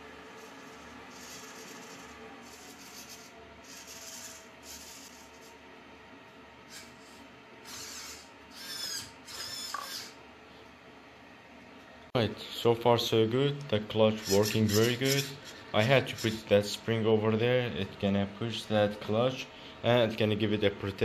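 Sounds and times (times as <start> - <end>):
small servo whirring: 0.2 - 5.5, 6.7 - 10.2, 14.2 - 16.4.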